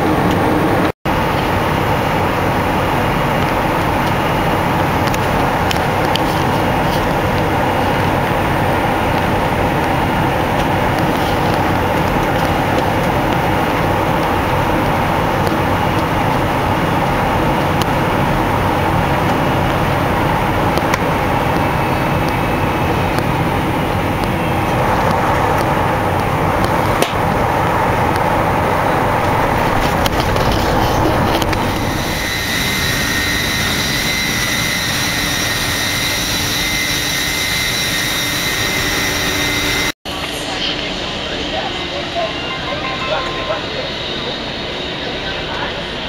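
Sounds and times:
airplane cabin noise: 0.0 - 46.0
jet engine and airflow rush: 0.0 - 46.0
landing gear rumble: 4.3 - 33.8.

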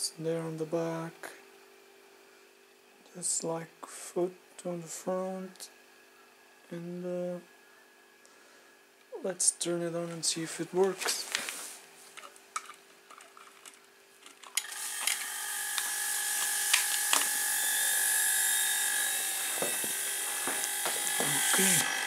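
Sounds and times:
compressor running: 10.8 - 22.0.

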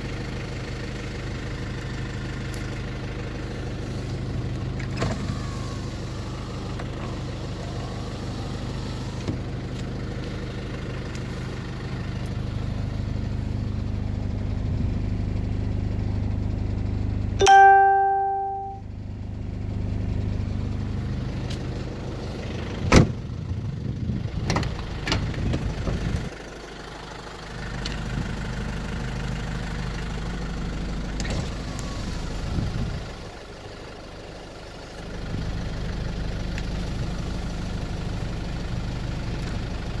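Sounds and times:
diesel engine idling: 0.0 - 40.0
loud chime: 17.4 - 18.8.

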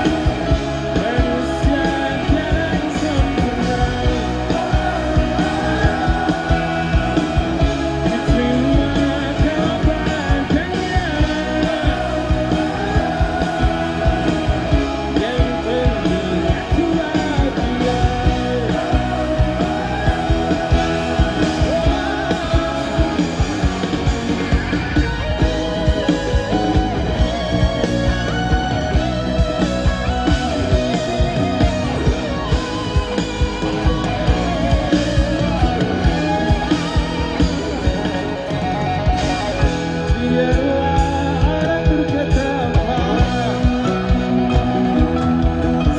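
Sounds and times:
man singing: 0.0 - 24.2, 39.3 - 45.9
live pop-rock band: 0.0 - 45.9.

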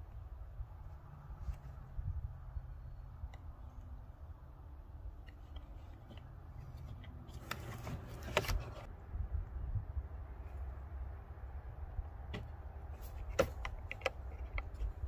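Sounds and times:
sharp plastic clicks and rattling: 13.2 - 15.0.

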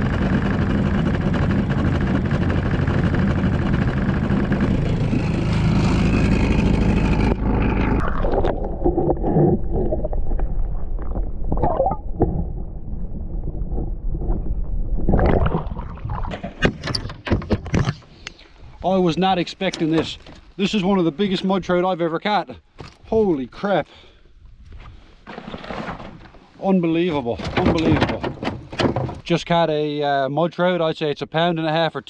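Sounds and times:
outboard motor running: 0.0 - 9.7
muffled underwater sloshing: 7.1 - 16.8
water splashing: 7.6 - 16.8.

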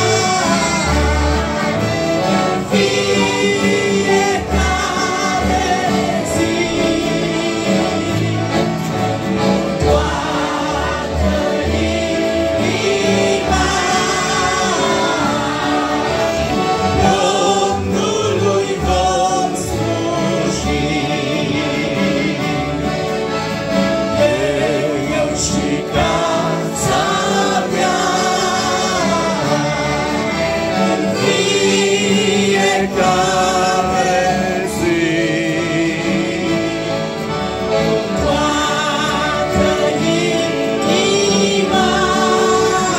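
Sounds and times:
women and children singing a hymn: 0.0 - 23.4, 24.0 - 42.9
accordions: 0.0 - 42.9
acoustic guitars: 0.0 - 42.9
keyboard: 0.0 - 42.9.

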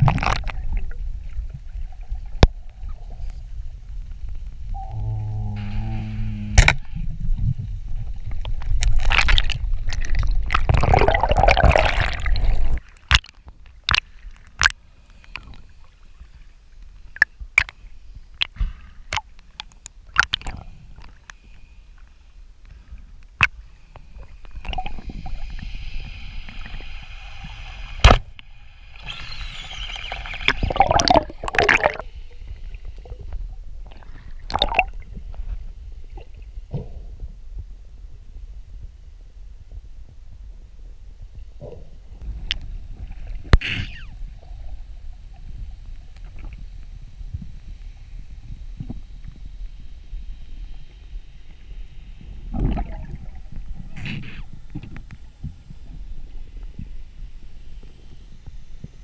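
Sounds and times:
sharp underwater clicks: 8.4 - 15.6, 17.1 - 21.4
hissing bubbling water: 9.0 - 12.8, 24.0 - 33.3, 33.9 - 35.1.

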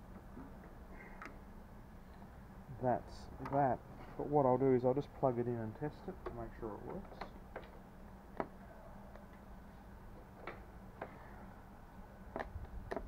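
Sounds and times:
connectors and switches clicking: 3.3 - 3.7, 5.8 - 8.5, 12.3 - 13.0.

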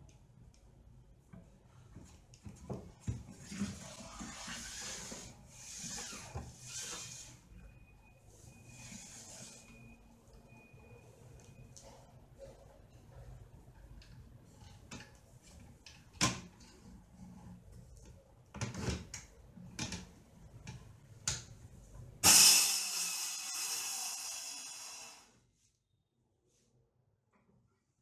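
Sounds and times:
circular saw motor running: 22.2 - 25.3.

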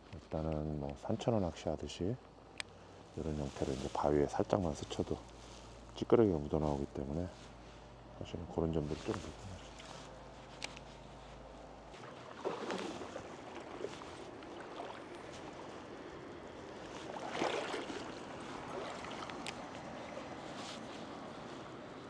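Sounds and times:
water sloshing splashes: 11.8 - 21.9
shallow stream rushing: 11.9 - 22.0.

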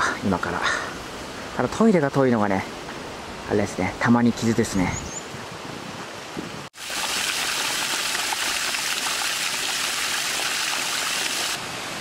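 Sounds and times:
water splashing into pool: 6.8 - 11.6.

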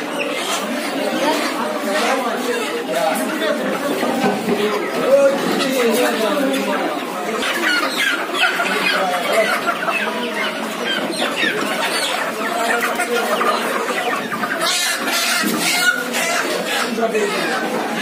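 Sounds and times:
chickens clucking and squawking: 0.0 - 18.0.

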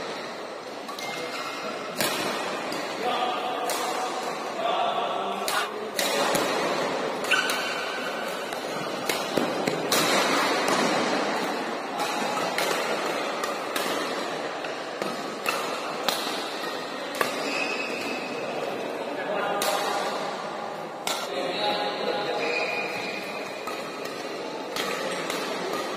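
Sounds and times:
racquets hitting shuttlecock: 0.8 - 4.6, 5.3 - 18.9, 22.9 - 25.9.

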